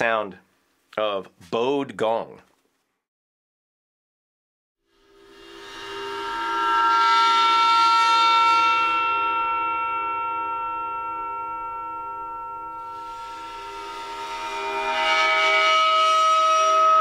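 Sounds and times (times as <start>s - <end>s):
bowed gong drone: 5.0s - 17.0s.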